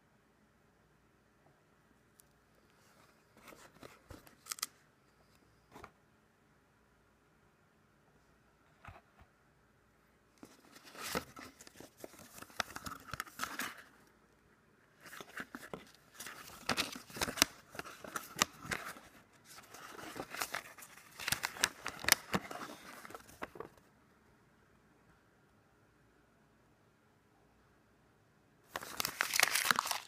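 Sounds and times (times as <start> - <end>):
paper crinkling and rustling: 3.4 - 4.7, 10.4 - 14.0, 15.0 - 23.8, 28.7 - 30.0.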